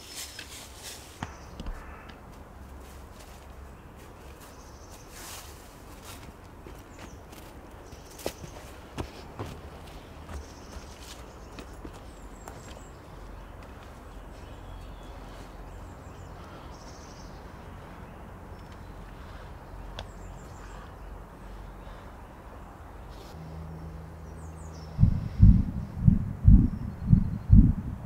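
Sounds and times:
low steady hum: 10.0 - 28.0
low background rumble: 12.8 - 28.0.

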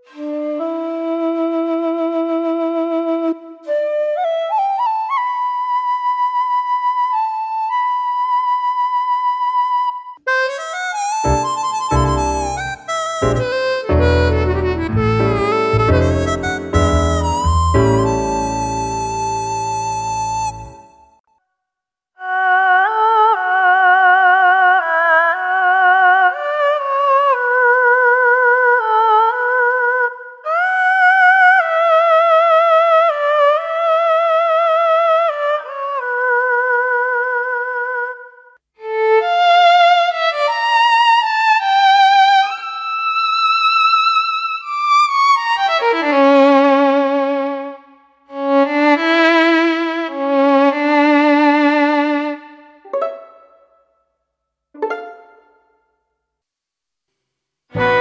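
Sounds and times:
digital wind synthesizer melody: 11.2 - 21.0.

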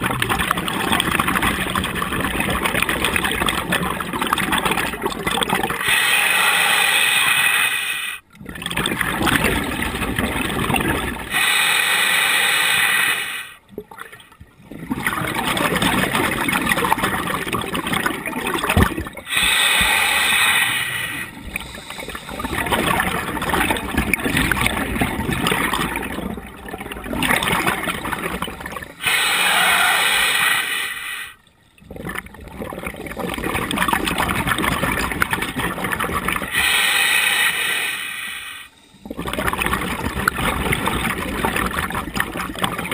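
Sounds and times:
bubbling exhale underwater: 0.0 - 7.8, 8.4 - 42.9
regulator hissing inhale: 5.8 - 8.2, 11.3 - 13.6, 19.3 - 23.0, 29.0 - 31.4, 36.5 - 39.2.

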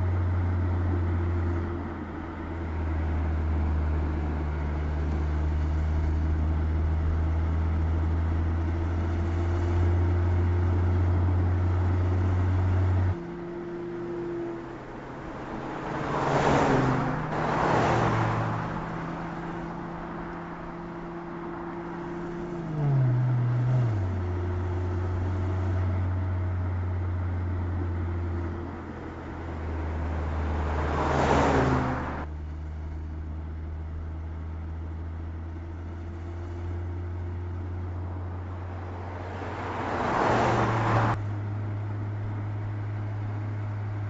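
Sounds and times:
car passing whoosh: 14.2 - 24.0, 29.3 - 32.3, 37.9 - 41.3.

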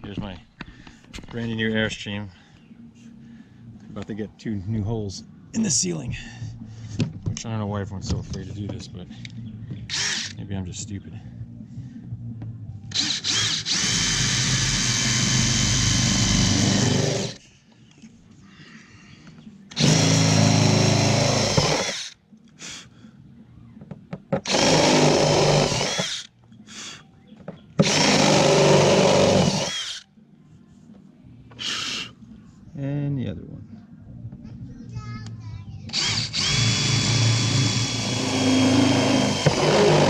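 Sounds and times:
drill cutting into metal: 9.9 - 10.4, 12.9 - 17.4, 19.7 - 22.1, 24.4 - 26.3, 27.8 - 30.0, 35.9 - 40.0.

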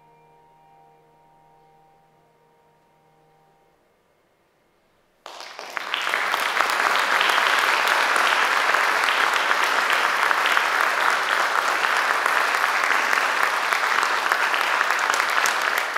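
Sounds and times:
audience applauding: 5.2 - 15.9.

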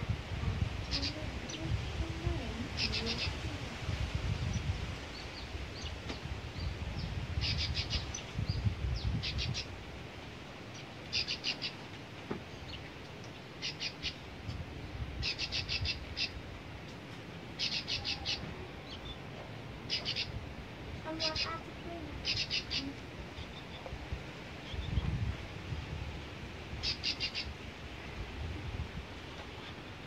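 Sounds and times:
low rumble: 0.0 - 4.8.

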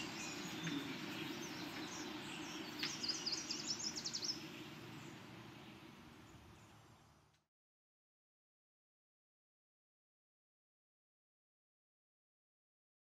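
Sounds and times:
bird chirping: 0.0 - 7.3
low background hum: 0.0 - 7.4.

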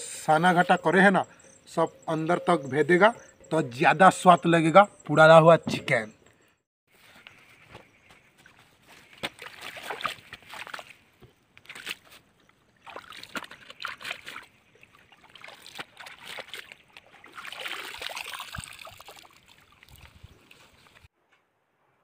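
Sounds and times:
water splashing and sloshing: 8.3 - 21.1
water trickling off leaves: 9.0 - 21.1.

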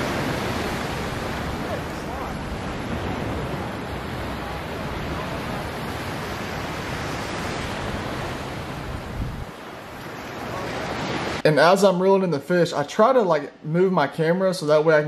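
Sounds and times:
wind rumbling on microphone: 0.0 - 11.4
surf breaking on shore: 0.0 - 11.7.

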